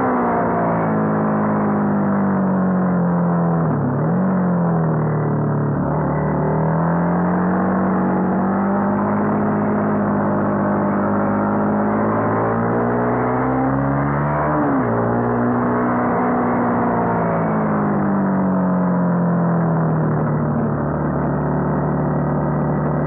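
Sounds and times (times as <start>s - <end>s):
motorcycle engine running hard: 0.0s - 23.0s.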